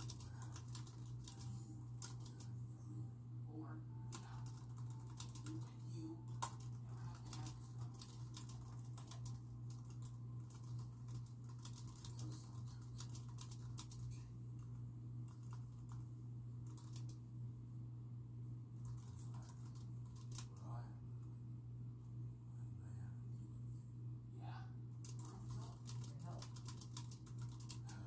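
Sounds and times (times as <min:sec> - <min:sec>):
typing on computer keyboard: 0:00.0 - 0:02.5, 0:04.1 - 0:14.7, 0:15.3 - 0:16.0, 0:16.6 - 0:17.2, 0:18.8 - 0:20.6, 0:25.0 - 0:28.0.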